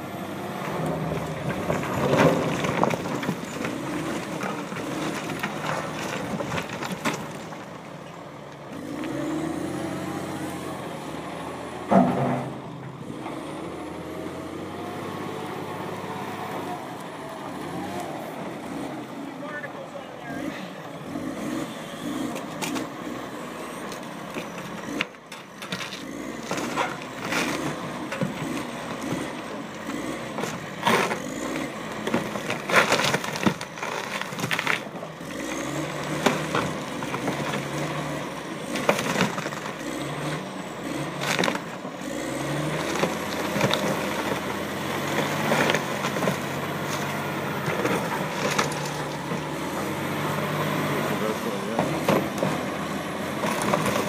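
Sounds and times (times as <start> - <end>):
diesel engine running: 0.0 - 54.0.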